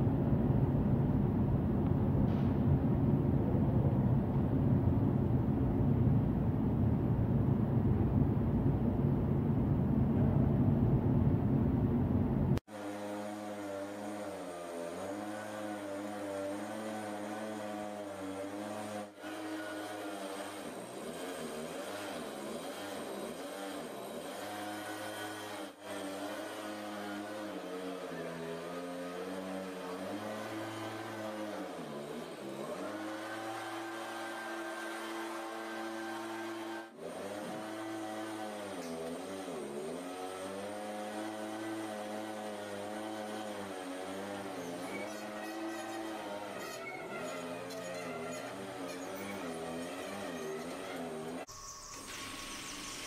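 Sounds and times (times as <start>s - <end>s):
backpack blower engine drone: 12.6s - 51.7s.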